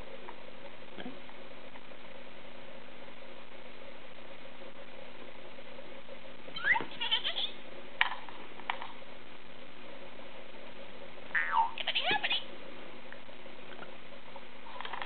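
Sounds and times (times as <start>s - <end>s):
steady low hum: 0.0s - 15.0s
baby squealing: 6.6s - 7.6s, 11.4s - 12.4s.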